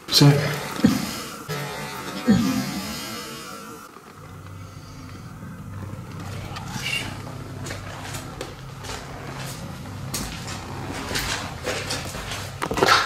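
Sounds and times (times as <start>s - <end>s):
low steady hum: 0.0s - 13.0s
footsteps and scuffs on floor: 5.6s - 13.0s.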